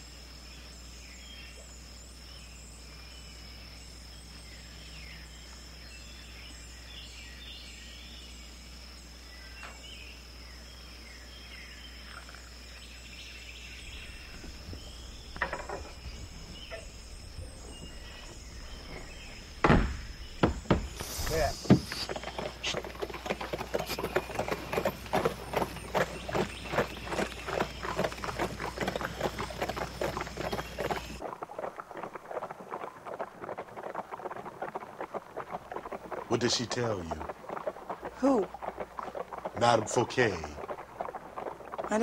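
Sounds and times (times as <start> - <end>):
knock: 19.6 - 20.9.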